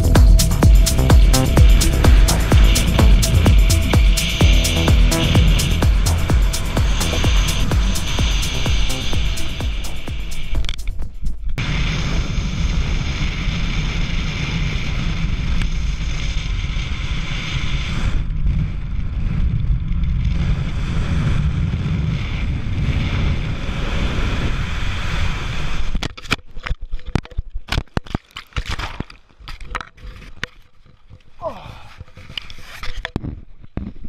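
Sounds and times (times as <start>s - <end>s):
wind buffeting microphone: 11.6s - 26.0s
crackles and knocks: 25.9s - 34.0s.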